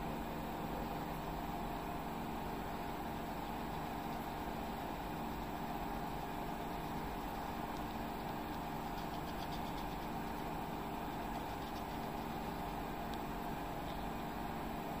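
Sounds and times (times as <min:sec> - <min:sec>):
machine-like hum: 0:00.0 - 0:15.0
pencil scratching on paper: 0:06.6 - 0:12.8.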